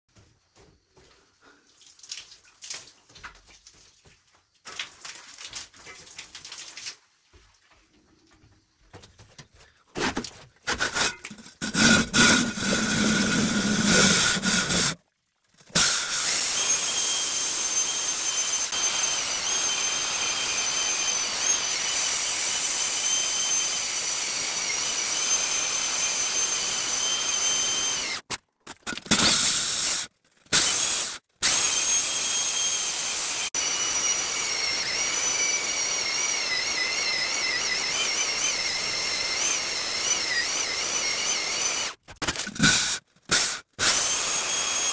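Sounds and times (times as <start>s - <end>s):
electric drill coring stone: 10.0s - 15.0s, 15.6s - 44.9s.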